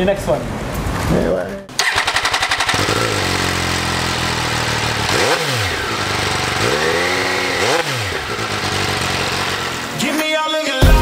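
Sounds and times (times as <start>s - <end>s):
motorcycle engine idling and revving: 1.7s - 10.1s.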